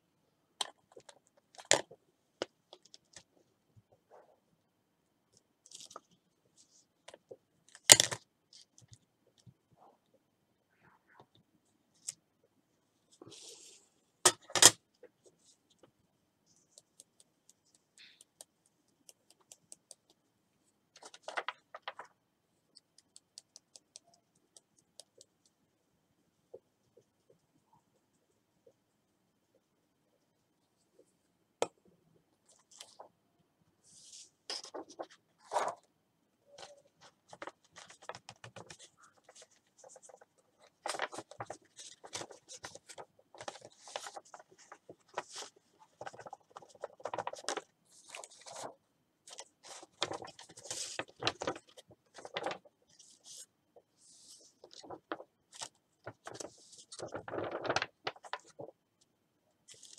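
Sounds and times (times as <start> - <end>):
paper scraping and rustling: 37.0 - 48.7, 49.3 - 53.4, 54.0 - 58.7.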